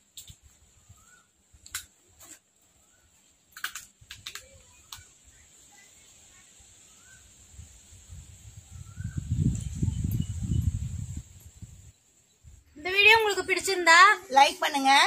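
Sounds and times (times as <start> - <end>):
sharp clicks and crackles: 0.1 - 0.4, 1.6 - 2.4, 3.5 - 5.1
faint bird chirps: 0.5 - 3.5, 4.4 - 13.7.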